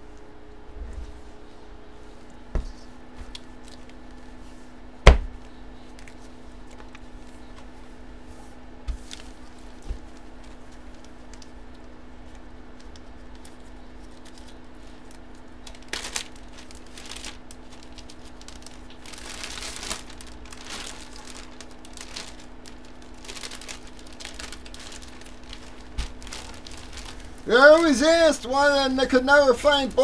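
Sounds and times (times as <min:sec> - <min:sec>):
faint steady hum: 0:00.0 - 0:30.0
plastic packaging crinkling: 0:09.0 - 0:29.2.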